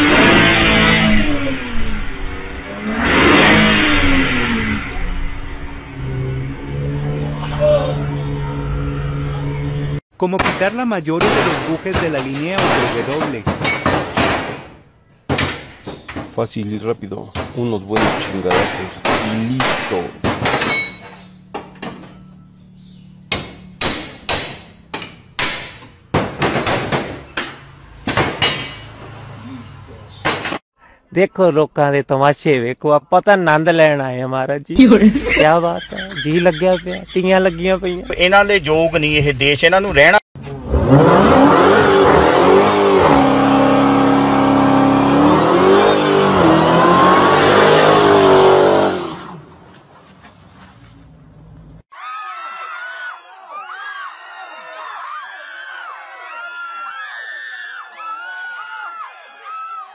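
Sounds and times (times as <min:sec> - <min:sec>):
hammer striking metal: 0:17.4 - 0:22.3, 0:23.3 - 0:29.0
car engine revving high: 0:40.5 - 0:49.5.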